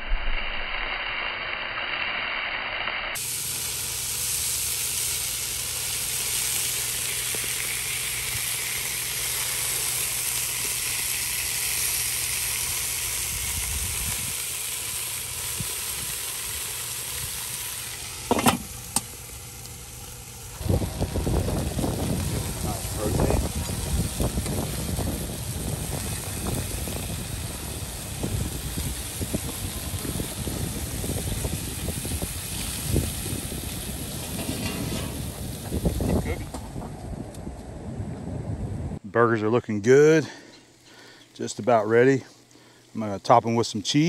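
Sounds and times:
meat sizzling on a grill: 3.2 - 36.6.

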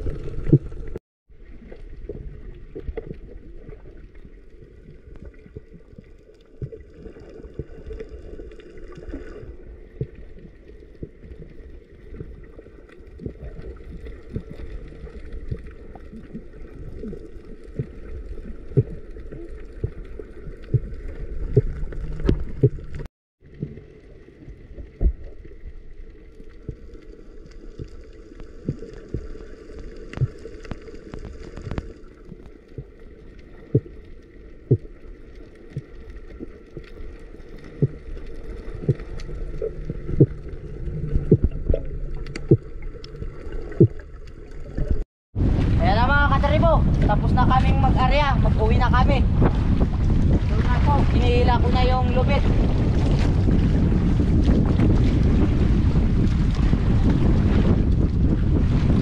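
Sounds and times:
underwater rush of water: 0.0 - 59.0
sharp underwater clicks and knocks: 19.8 - 23.7, 27.7 - 33.0, 37.6 - 45.0.

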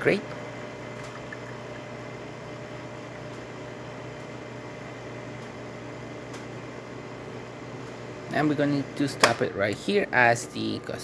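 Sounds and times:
espresso machine pump humming: 0.0 - 11.0
coffee running into cup: 0.9 - 2.0.

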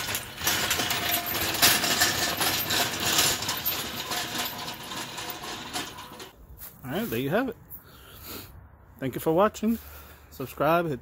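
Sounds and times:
engine hoist casters rolling on concrete: 0.0 - 6.4
metal frame and chain rattling: 0.0 - 6.5.

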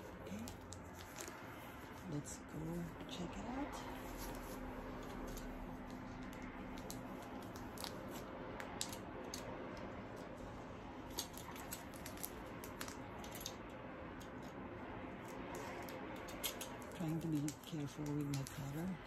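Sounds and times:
plastic wrap being handled: 0.0 - 2.1, 3.9 - 9.5, 11.1 - 13.6.

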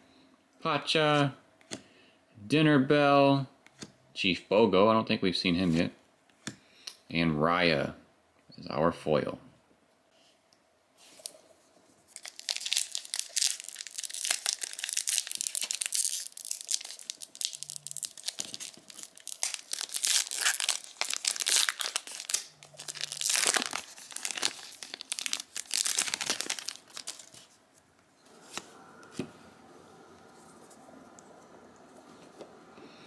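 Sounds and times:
wrapper tearing: 12.1 - 27.6
plastic wrapper crinkling: 12.1 - 27.8.

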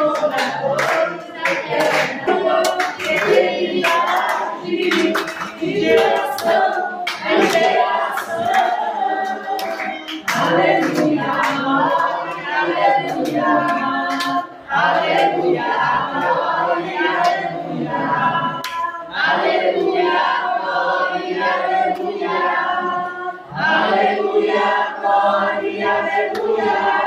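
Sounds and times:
hand clapping: 0.0 - 12.5, 13.1 - 14.4, 18.6 - 18.9
congregation singing: 0.0 - 27.0.

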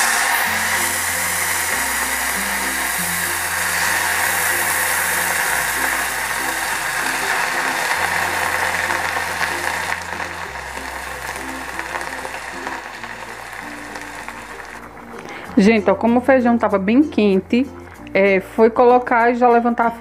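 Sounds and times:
beans sizzling in hot oil: 0.0 - 19.5.

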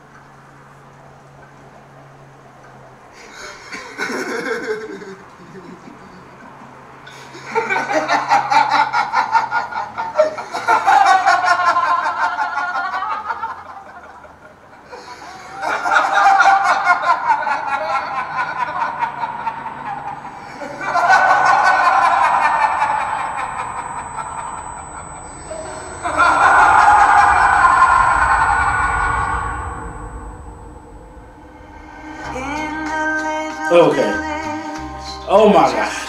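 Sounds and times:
man laughing: 3.2 - 13.4.

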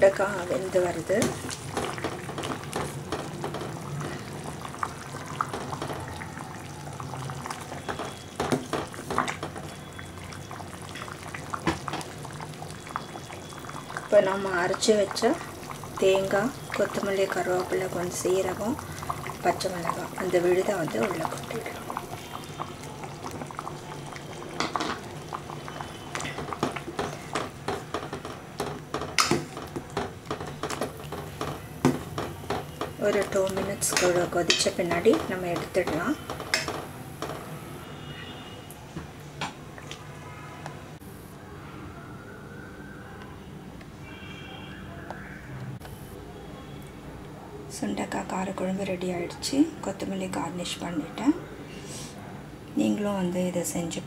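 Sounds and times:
curry boiling in a pot: 0.0 - 38.7
ladle knocking: 26.3 - 37.5.

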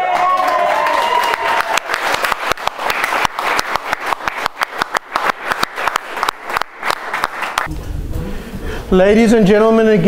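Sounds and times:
small group applauding: 0.0 - 7.7.

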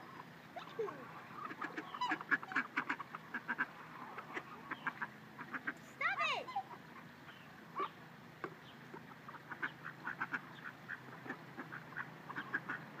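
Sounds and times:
ducks quacking: 0.0 - 13.0.

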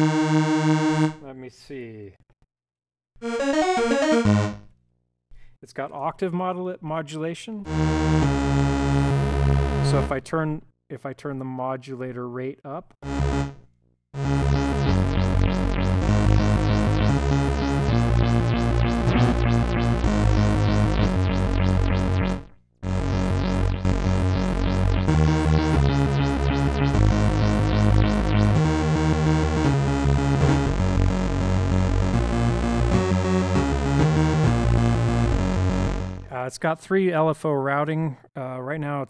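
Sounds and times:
synthesizer playing pulsing chords: 0.0 - 1.2, 3.2 - 4.6, 7.7 - 10.1, 13.0 - 13.6, 14.2 - 36.3.

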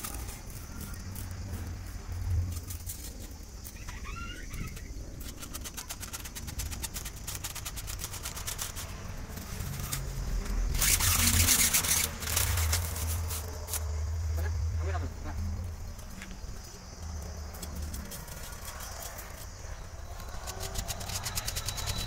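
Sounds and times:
wire scraping through pipe: 4.6 - 14.5.

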